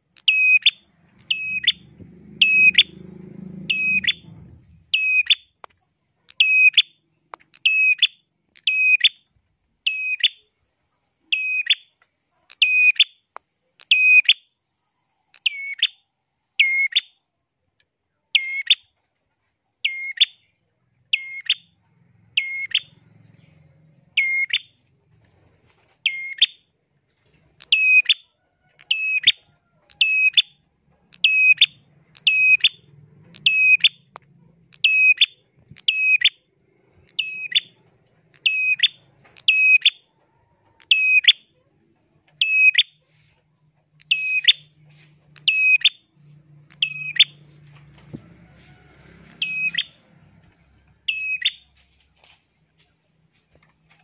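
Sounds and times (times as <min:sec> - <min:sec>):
bird shrill calls: 0:00.2 - 0:02.9, 0:44.0 - 0:44.7, 0:49.3 - 0:50.0.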